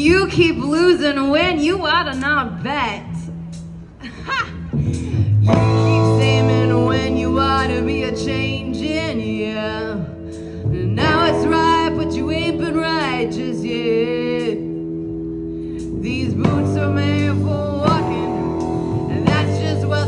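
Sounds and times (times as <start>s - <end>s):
drums: 0.0s - 9.2s, 9.8s - 13.6s, 15.6s - 20.0s
bass guitar: 0.0s - 20.0s
electric guitar: 3.1s - 20.0s
person singing: 5.5s - 14.9s, 15.8s - 20.0s.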